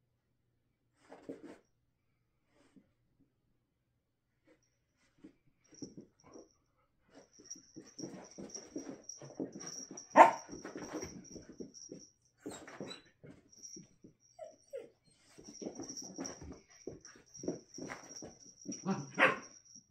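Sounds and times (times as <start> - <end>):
dogs scuffling: 7.4 - 13.9, 15.3 - 19.6
dog barking: 10.1 - 10.5, 18.8 - 19.6
puppy whimpering: 14.3 - 15.9.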